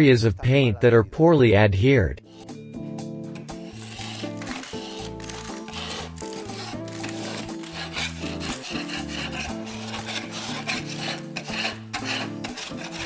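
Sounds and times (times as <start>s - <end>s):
background music: 0.0s - 13.0s
putty knife scraping paint: 2.3s - 2.6s, 3.4s - 13.0s.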